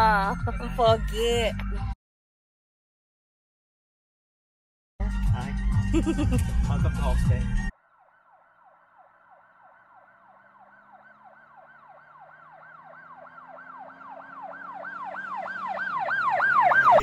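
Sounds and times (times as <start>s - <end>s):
yelping siren: 7.8s - 17.0s.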